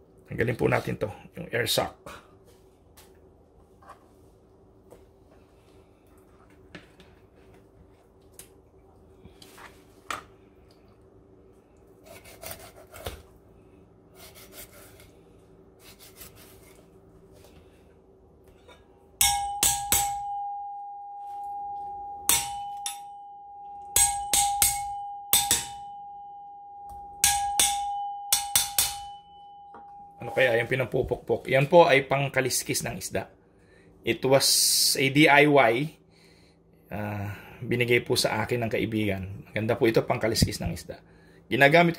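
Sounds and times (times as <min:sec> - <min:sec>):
knife scraping on fish: 0:12.0 - 0:13.2, 0:14.2 - 0:15.1, 0:15.8 - 0:16.8
metal hammer blows on knife: 0:19.2 - 0:30.6.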